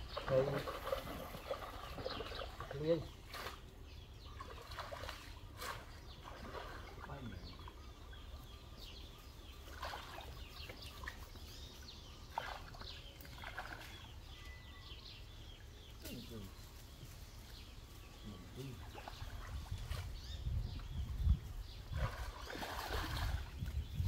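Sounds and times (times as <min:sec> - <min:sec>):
water splashing: 0:00.0 - 0:08.4, 0:09.5 - 0:11.5, 0:12.2 - 0:14.2, 0:21.8 - 0:24.0
birds chirping: 0:00.0 - 0:24.0.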